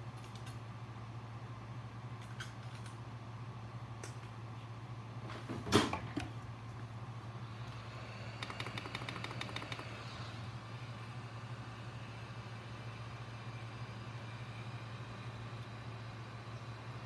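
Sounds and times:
rapid clicks: 8.4s - 10.0s.

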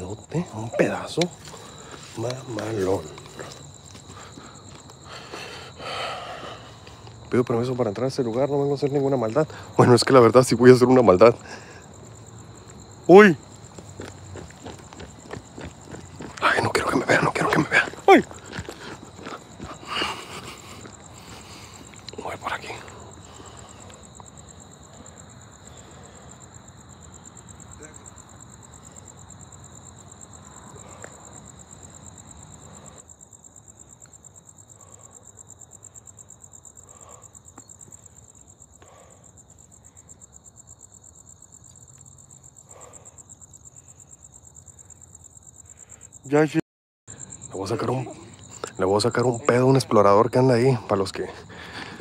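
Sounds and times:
crickets chirping: 0.0s - 52.0s.

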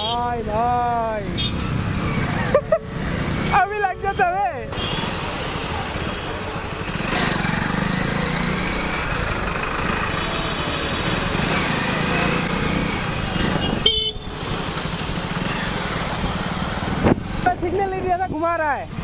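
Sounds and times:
motorcycle engine running: 6.6s - 17.6s.

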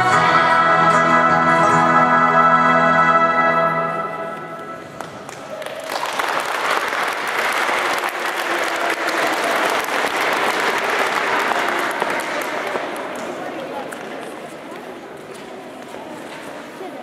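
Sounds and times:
audience applauding: 4.8s - 13.8s.

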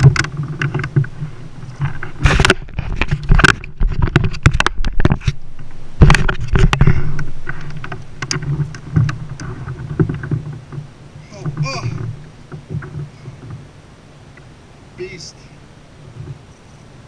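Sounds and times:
low steady rumble: 0.0s - 17.0s
camera mount clicks and rattles: 1.7s - 5.4s.

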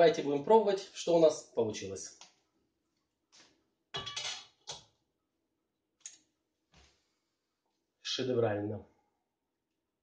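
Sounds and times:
metal ladle clinking against pot: 4.0s - 4.8s.

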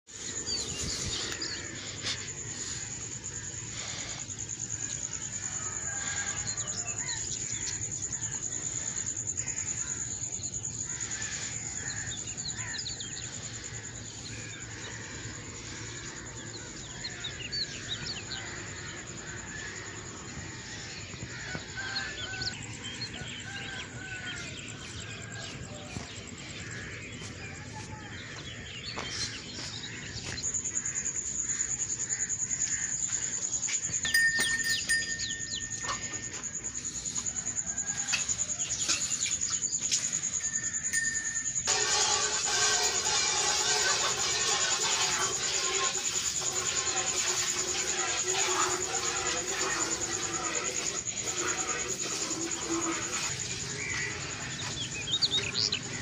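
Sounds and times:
birds chirping and calling: 33.9s - 37.2s, 48.7s - 56.0s
steady high-pitched tone: 34.0s - 39.1s, 39.8s - 41.9s.

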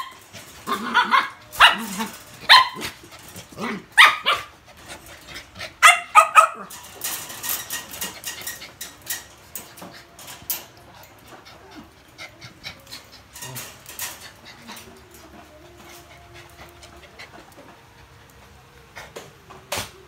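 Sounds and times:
small dog barking: 0.7s - 2.9s, 4.0s - 4.5s, 5.8s - 6.7s
rustling and clicking: 6.7s - 20.0s.

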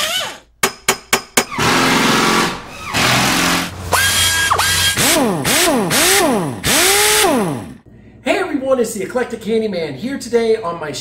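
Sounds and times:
power tool motor whirring: 1.6s - 7.8s.

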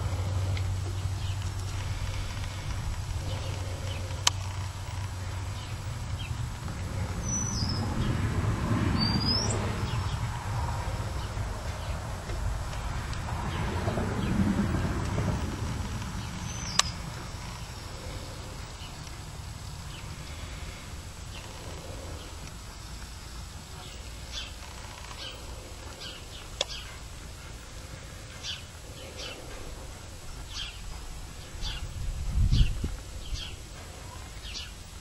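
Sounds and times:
bird chirping: 0.0s - 12.2s, 12.8s - 34.8s
low steady rumble: 0.0s - 35.0s
sharp clicks: 15.9s - 17.0s.

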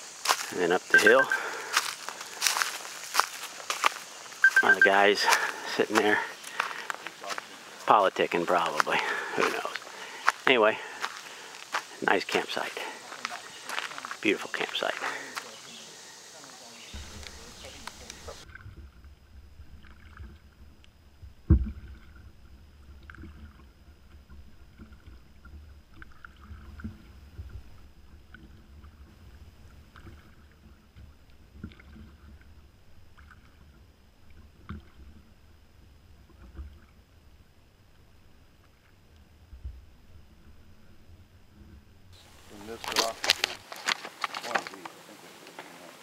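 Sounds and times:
kayak paddle strokes dripping: 0.0s - 45.6s.

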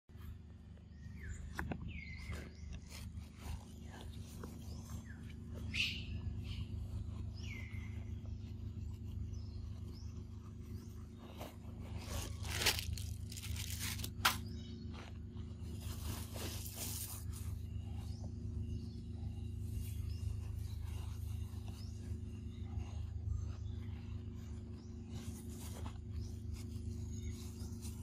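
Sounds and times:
steady low hum: 0.1s - 28.0s
bird chirps: 0.2s - 28.0s.

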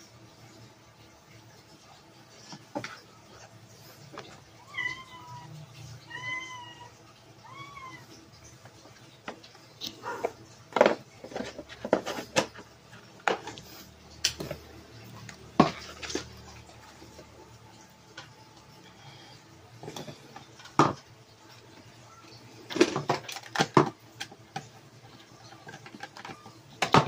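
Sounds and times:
cat meowing: 4.6s - 8.2s
plastic clicks and knocks: 22.7s - 24.7s, 25.4s - 27.0s.

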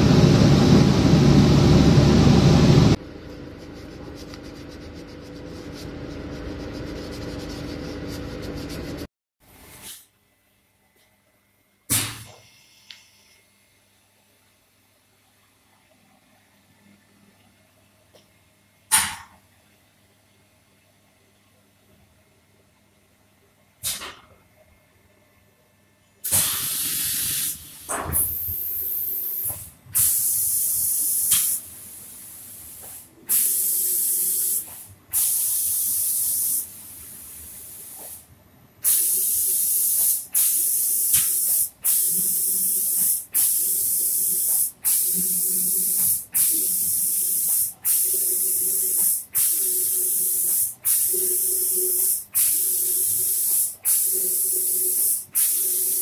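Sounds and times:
spray gun hissing: 32.4s - 36.7s, 38.8s - 56.0s.

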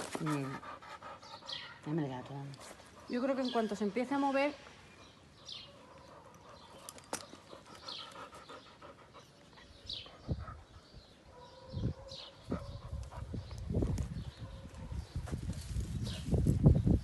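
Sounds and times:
dog panting: 0.0s - 1.8s, 5.8s - 11.2s.

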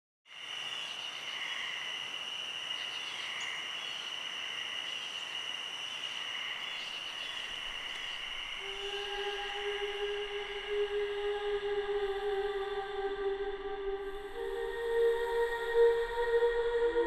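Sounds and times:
insects trilling: 0.3s - 16.6s
insect chirps: 0.3s - 17.0s.

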